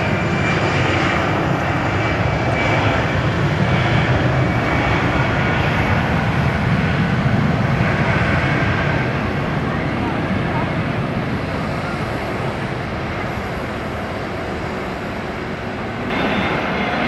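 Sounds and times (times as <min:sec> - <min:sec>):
airliner engines roaring: 0:00.0 - 0:17.0.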